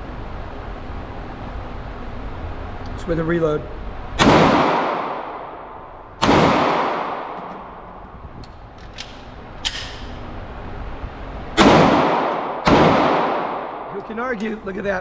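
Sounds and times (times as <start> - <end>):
pistol shots echoing: 4.2 - 5.5, 6.2 - 7.7, 11.6 - 14.0
light clicks of reloading: 8.4 - 10.2.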